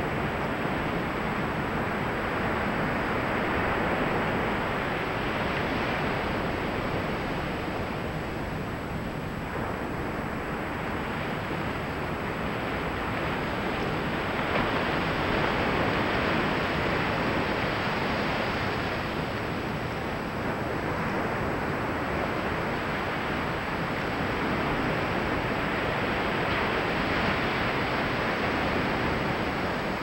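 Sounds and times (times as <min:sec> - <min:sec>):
ocean surf breaking on beach: 0:00.0 - 0:30.0.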